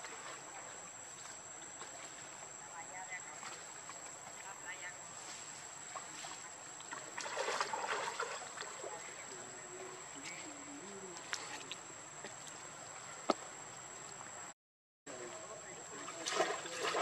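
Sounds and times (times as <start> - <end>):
monkeys splashing in water: 5.6 - 12.7, 16.0 - 17.0
faint voices: 8.8 - 13.3.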